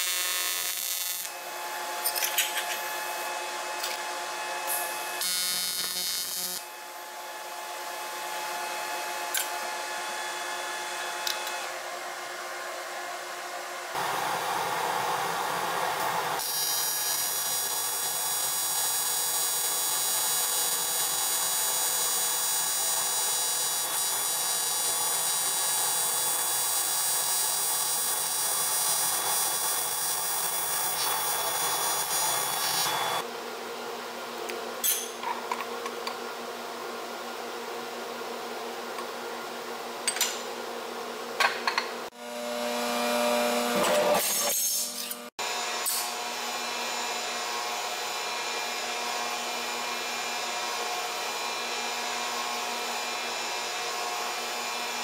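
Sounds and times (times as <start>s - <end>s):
welding arc buzzing: 0.0s - 4.0s, 4.6s - 7.2s, 16.0s - 33.2s.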